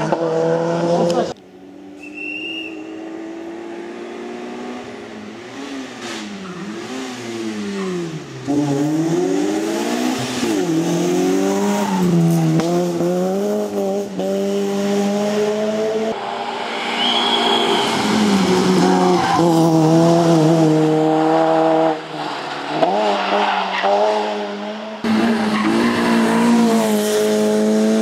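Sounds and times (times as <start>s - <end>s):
rally car engine revving: 0.0s - 1.4s, 2.0s - 28.0s.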